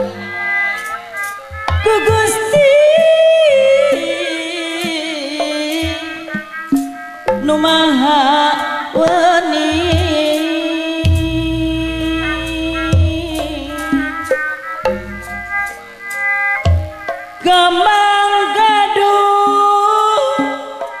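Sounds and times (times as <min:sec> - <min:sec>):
woman singing ornamented vocal line: 0:00.0 - 0:06.8, 0:07.4 - 0:14.6, 0:17.4 - 0:21.0
band playing steady tones: 0:00.0 - 0:21.0
deep drum strokes: 0:11.1 - 0:15.8.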